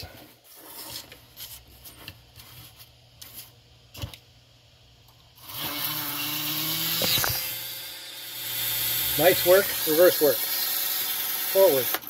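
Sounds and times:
small electric motor whirring: 0:05.4 - 0:12.0.

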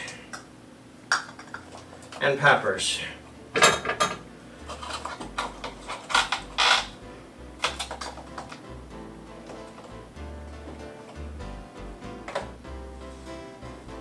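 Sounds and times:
kitchen utensils clacking: 0:03.6 - 0:07.0.

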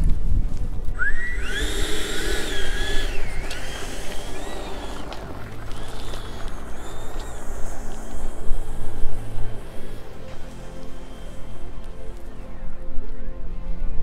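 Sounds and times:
low rumble: 0:00.0 - 0:13.1
model jet engine whining: 0:01.0 - 0:12.0.

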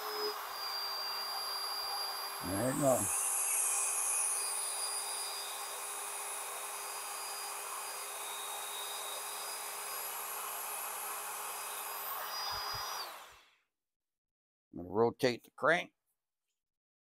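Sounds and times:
electric drill running: 0:00.0 - 0:13.6.

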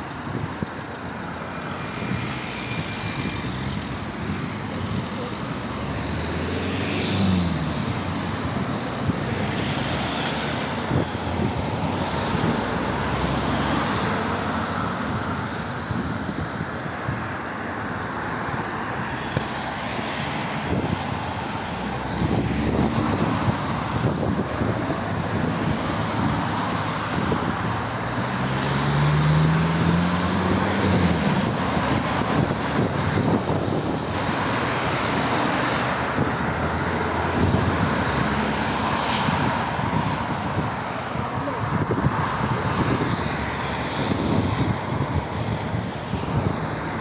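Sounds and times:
traffic on a wet road: 0:00.0 - 0:47.0
engine revving: 0:28.2 - 0:33.9.

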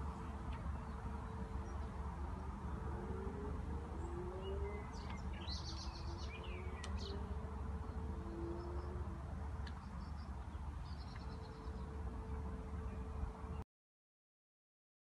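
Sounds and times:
steady low rumble: 0:00.0 - 0:13.6
distant car engine revving: 0:01.4 - 0:09.5.

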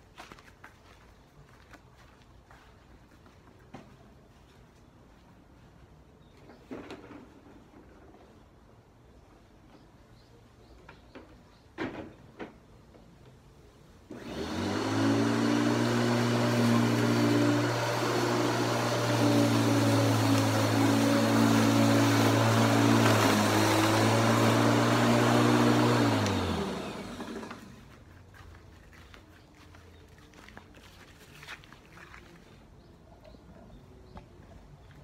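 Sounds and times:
lawn mower engine running: 0:14.1 - 0:28.0.

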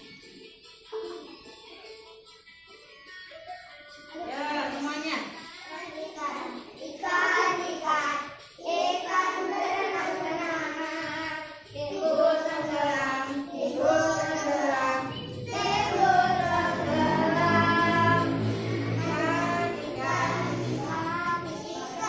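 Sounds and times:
recorded song from a laptop: 0:00.0 - 0:22.0
children singing: 0:05.7 - 0:22.0.

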